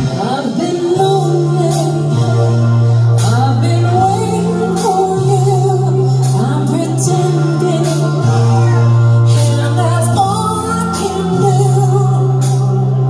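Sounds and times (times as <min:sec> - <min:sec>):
live rock band playing: 0:00.0 - 0:13.0
sustained bass notes: 0:00.0 - 0:13.0
woman singing into a microphone: 0:00.0 - 0:13.0.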